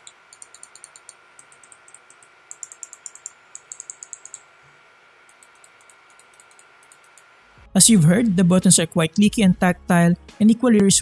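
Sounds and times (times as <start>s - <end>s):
mouse buttons clicking: 0.0s - 4.4s.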